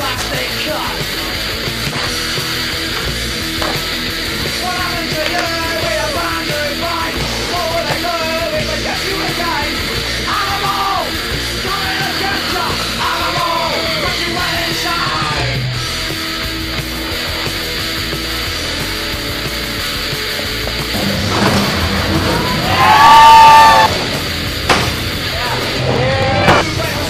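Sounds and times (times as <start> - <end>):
fast punk rock band: 0.0 - 27.0
shouted vocals: 22.2 - 23.9.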